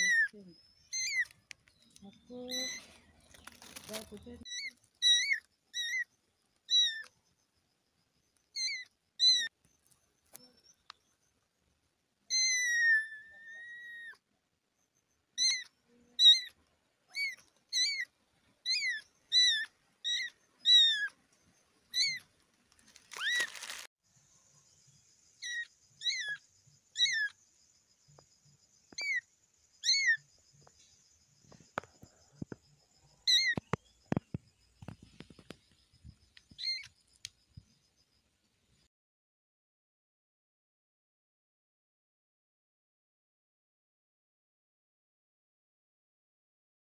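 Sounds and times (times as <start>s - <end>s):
brief rustle: 2.7s - 4.3s, 22.5s - 23.9s.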